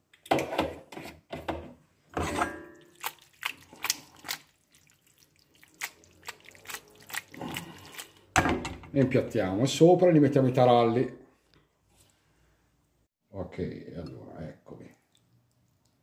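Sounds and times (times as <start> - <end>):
pasta slapping in a metal pan: 2.8 - 8.3.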